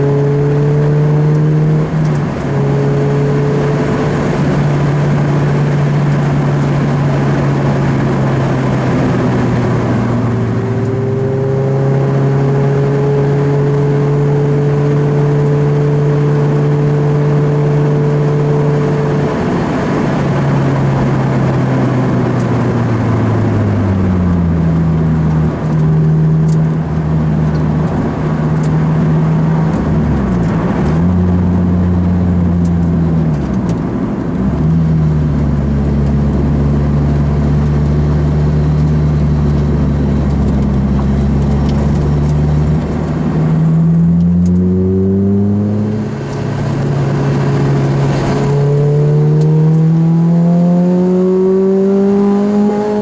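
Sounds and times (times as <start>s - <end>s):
car engine from inside: 0.0s - 53.0s.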